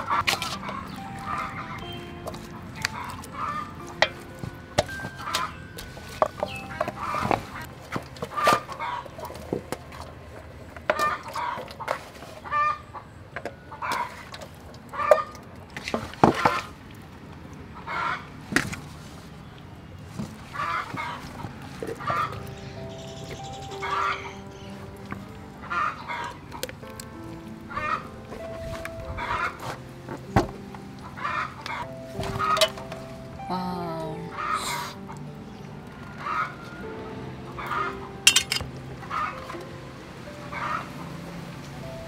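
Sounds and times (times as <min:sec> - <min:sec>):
chickens clucking: 0:00.0 - 0:10.2, 0:20.5 - 0:33.2, 0:34.2 - 0:39.6.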